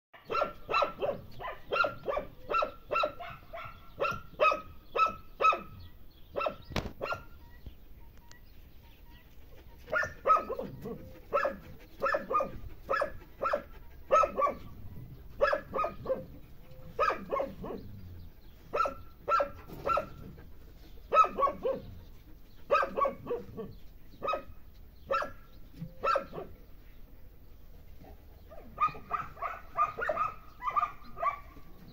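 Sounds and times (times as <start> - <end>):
dog barking: 0.2 - 7.4, 9.9 - 14.7, 15.4 - 16.3, 16.9 - 17.9, 18.7 - 20.3, 21.1 - 21.9, 22.7 - 25.4, 26.0 - 26.6, 28.5 - 31.7.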